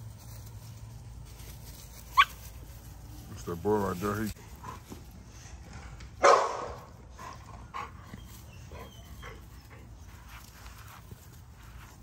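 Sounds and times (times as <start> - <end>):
puppies yipping and whimpering: 2.1 - 2.4, 8.0 - 9.7
dog barking: 6.2 - 6.8.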